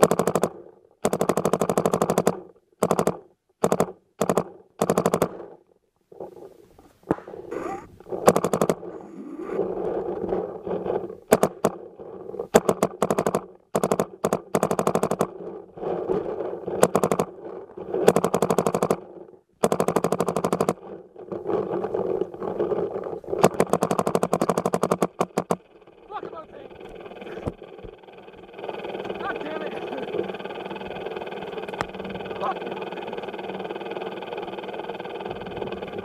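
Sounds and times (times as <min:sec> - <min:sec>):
paintball markers firing: 0:00.0 - 0:05.6, 0:07.0 - 0:09.6, 0:11.3 - 0:11.9, 0:12.5 - 0:15.6, 0:16.7 - 0:17.4, 0:18.0 - 0:19.0, 0:19.6 - 0:32.5.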